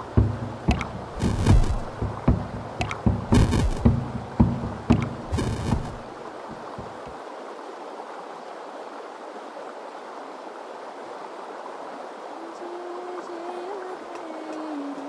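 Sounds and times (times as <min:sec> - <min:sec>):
plucked double bass notes: 0:00.0 - 0:06.1
river flowing: 0:00.0 - 0:15.0.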